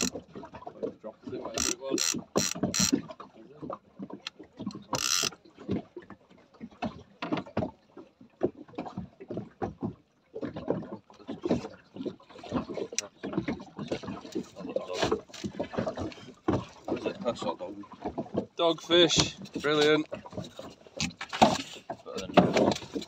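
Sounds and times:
water slapping against boat hull: 0.0 - 23.0
fishing rod and reel handling: 1.5 - 3.0, 4.2 - 5.4.

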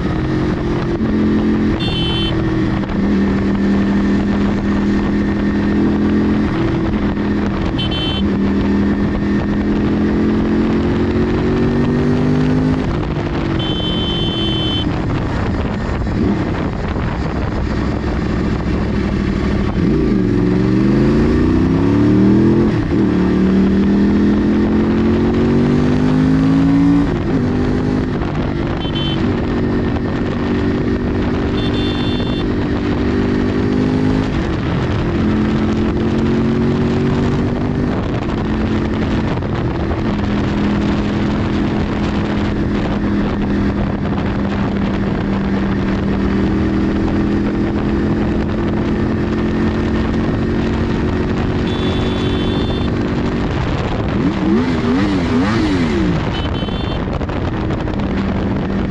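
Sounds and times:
motorcycle engine revving: 0.0 - 58.9
short horn beeps: 1.8 - 2.5, 7.8 - 8.3, 13.5 - 15.0, 28.8 - 29.3, 31.6 - 32.5, 51.6 - 53.0, 56.3 - 57.0.

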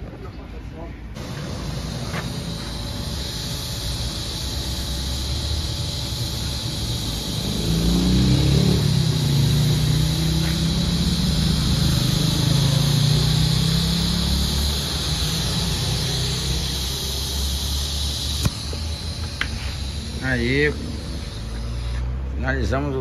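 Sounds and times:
welding arc hissing: 1.2 - 23.0
low droning hum: 8.6 - 22.2.

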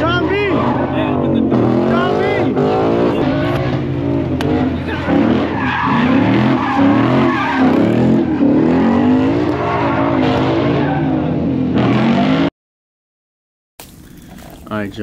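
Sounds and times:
tyres squealing: 0.0 - 11.2
car engine revving high: 0.0 - 12.5.

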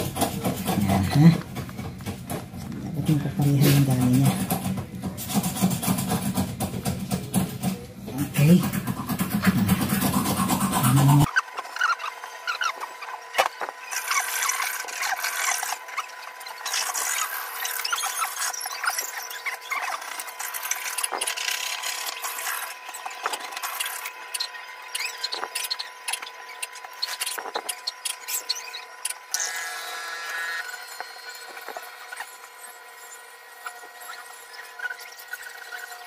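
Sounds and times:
marble strip rubbing on tile: 3.1 - 13.2, 13.8 - 29.2.

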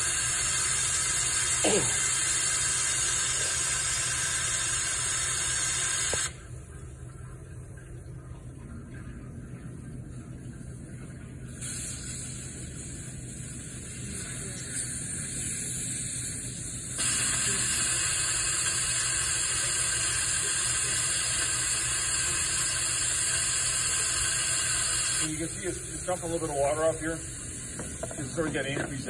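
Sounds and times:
compressed air hissing: 11.6 - 13.8, 14.8 - 28.8.

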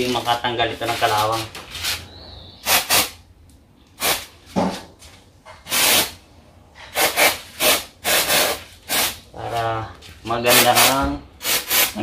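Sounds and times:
aerosol spray hissing bursts: 2.6 - 3.1, 4.0 - 4.2, 5.7 - 6.1, 7.0 - 9.2, 10.8 - 12.0.

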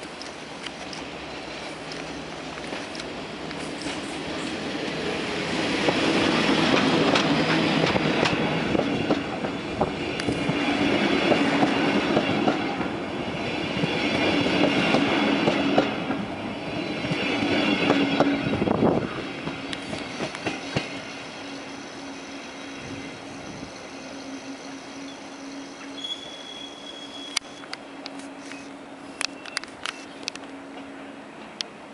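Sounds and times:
steady train hum: 0.0 - 31.9
train wheels on rails: 0.0 - 31.9
wheel squeal: 19.9 - 27.6.

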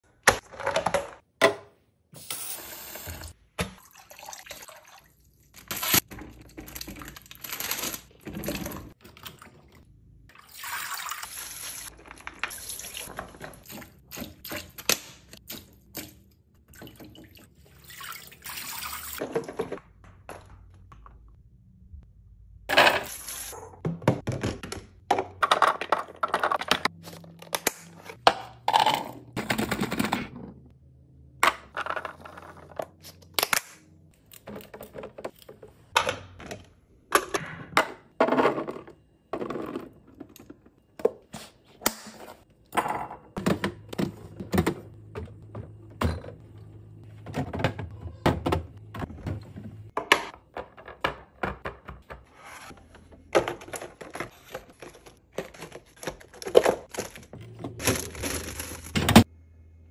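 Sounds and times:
plastic containers clattering: 19.2 - 21.1, 23.8 - 30.7, 42.1 - 46.5, 47.1 - 59.3
snack packs set in plastic bin: 52.7 - 59.2
carrots tumbling into container: 53.4 - 59.2.

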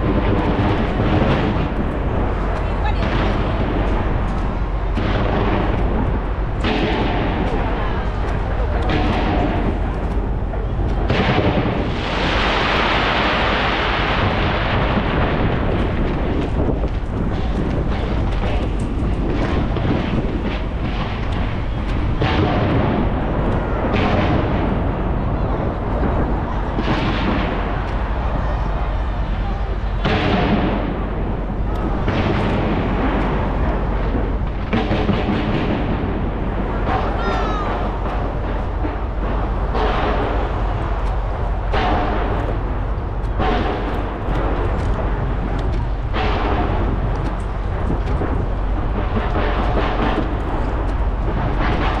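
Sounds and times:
hissing crackle of fireworks: 0.0 - 52.0
rumble of firework booms: 0.0 - 52.0.

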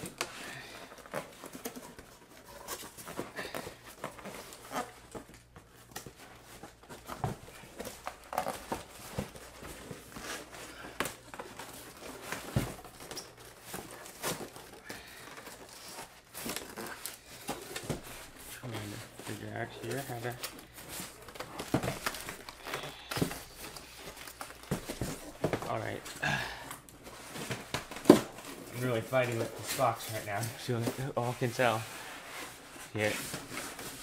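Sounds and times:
cardboard rustling and scraping: 0.0 - 26.2, 26.8 - 34.0
cardboard tearing: 6.3 - 25.9.

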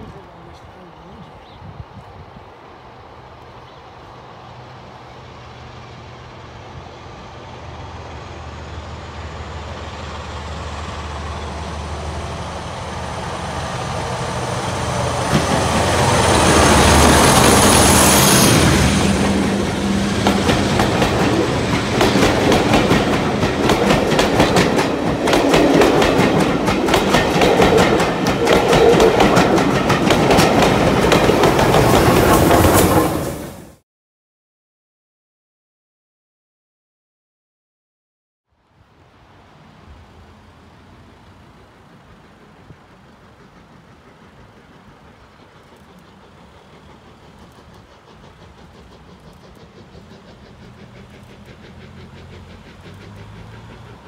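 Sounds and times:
diesel locomotive engine hum: 0.0 - 33.8, 38.6 - 54.0
wheels clacking over rail joints: 10.0 - 33.5, 41.2 - 54.0.

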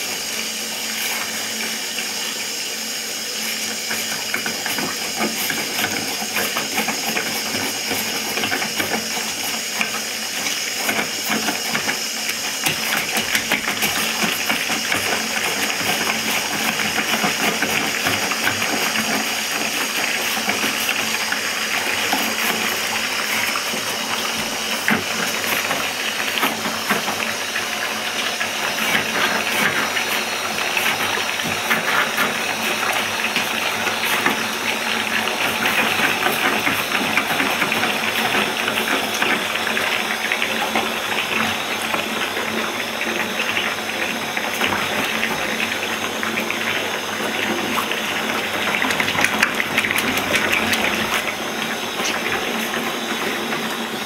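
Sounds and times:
tap water pouring into tub: 0.0 - 54.0.

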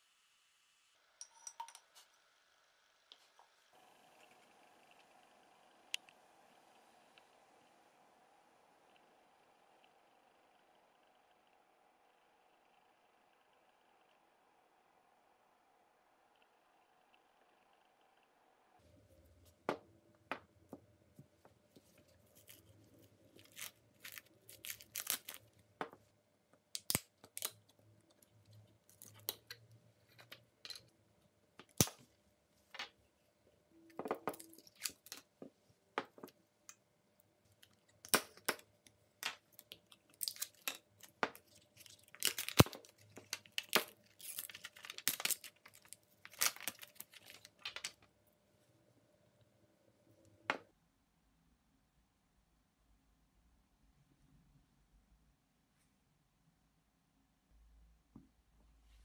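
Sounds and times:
plastic film tearing and crinkling: 22.3 - 25.5, 40.2 - 47.6.

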